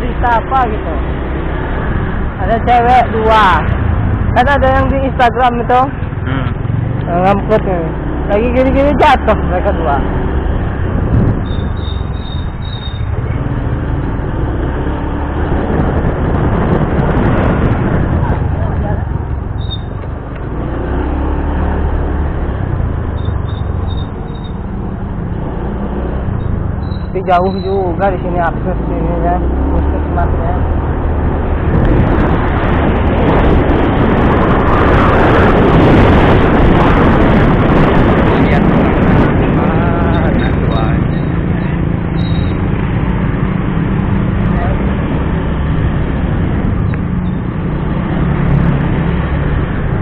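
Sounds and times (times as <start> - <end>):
wind buffeting microphone: 0.0 - 50.0
scooter engine rumble: 5.6 - 9.4, 10.6 - 28.4
motorbike engine running: 6.1 - 9.4.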